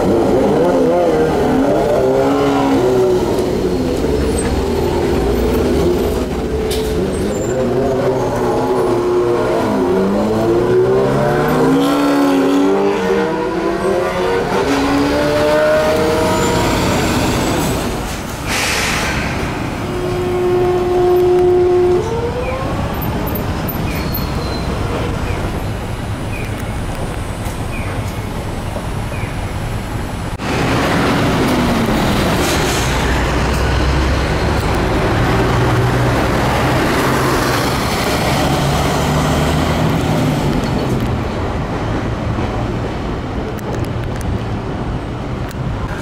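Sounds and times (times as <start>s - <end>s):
bus engine running: 0.0s - 8.9s
buses and cars in traffic: 0.0s - 46.0s
air hiss: 18.1s - 19.8s.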